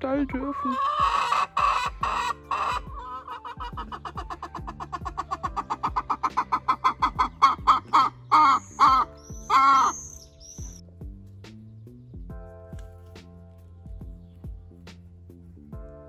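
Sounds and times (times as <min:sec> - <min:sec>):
hen clucking: 0:00.2 - 0:10.8
hen squawking: 0:00.3 - 0:10.8
background music with a beat: 0:00.8 - 0:16.0.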